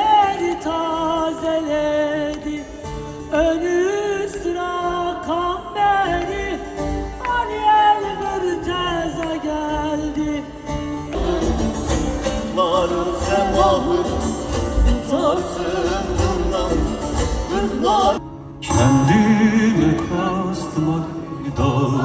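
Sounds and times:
band playing with heavy bass: 10.7 - 22.0.

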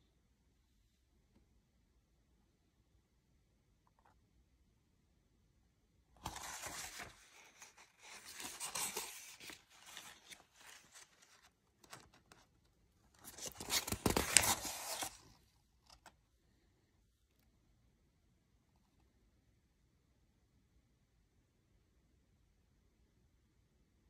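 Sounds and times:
paper pages rustling: 6.2 - 16.2.

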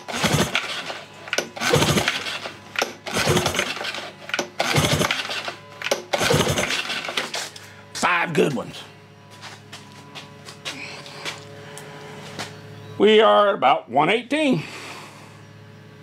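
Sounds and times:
outboard engine pull-starter cranking: 0.0 - 7.5.

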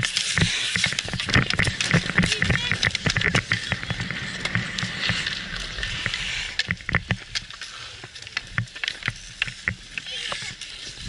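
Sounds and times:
sticks and puck knocking on ice: 0.0 - 7.5
skate blades scraping on ice: 0.0 - 11.0.

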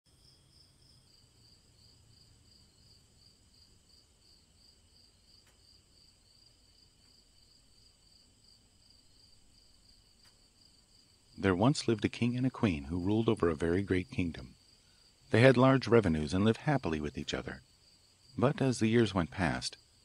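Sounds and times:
faint crickets chirping: 0.1 - 20.0.

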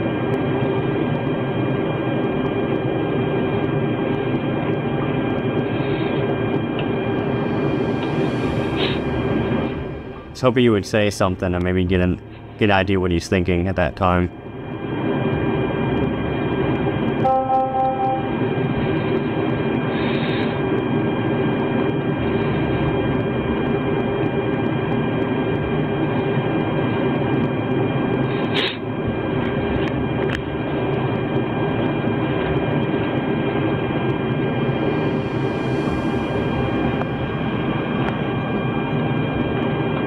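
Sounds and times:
steady rumble and hiss: 0.0 - 40.0
faint electronic tones: 17.2 - 18.5
brief tone: 17.2 - 18.6.

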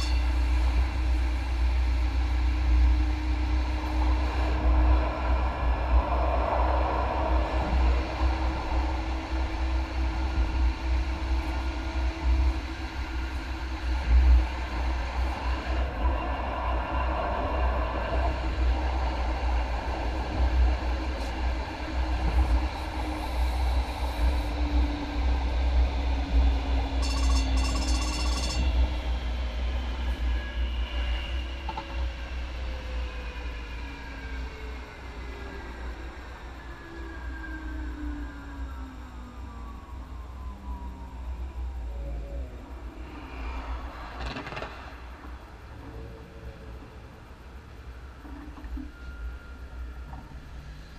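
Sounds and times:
light rail train rumbling on track: 0.0 - 50.9.

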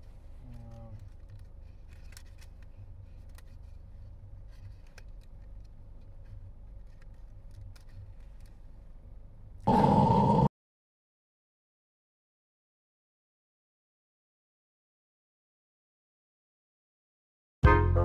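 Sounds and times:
packaging clicks and crinkles: 0.0 - 8.6
low steady rumble: 0.0 - 10.4.

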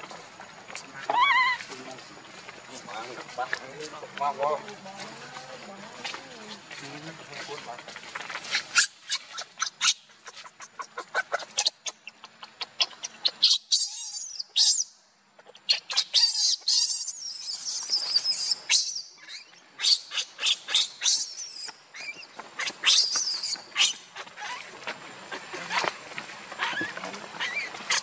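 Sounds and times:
baby monkey squealing: 1.0 - 1.7, 8.5 - 24.7, 26.5 - 28.0.

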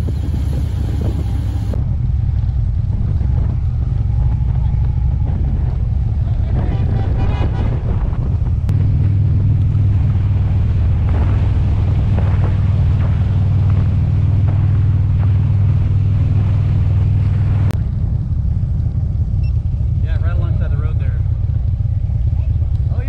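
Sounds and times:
motorcycle engine running: 0.0 - 23.0
wind noise on microphone: 0.0 - 23.0.

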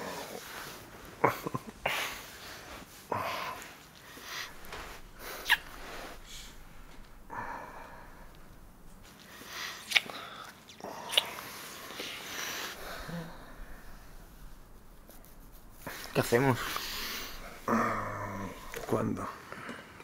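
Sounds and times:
breathing and exhales: 1.8 - 20.0
people kissing: 4.6 - 7.3, 7.9 - 14.0
sharp kiss squeak: 5.4 - 5.8.

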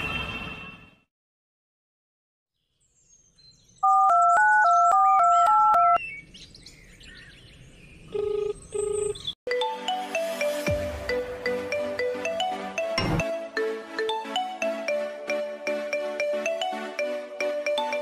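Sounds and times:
birds chirping: 2.6 - 9.4.

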